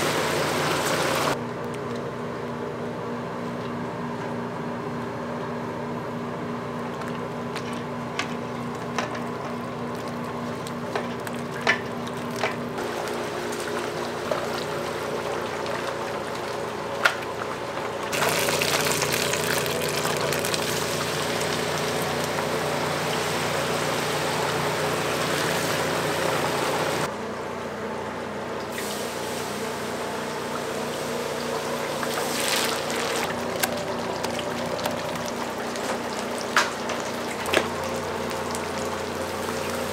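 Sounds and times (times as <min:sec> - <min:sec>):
kitchen equipment humming: 0:00.0 - 0:39.9
wet batter sloshing and dripping: 0:06.8 - 0:25.8, 0:31.4 - 0:39.9.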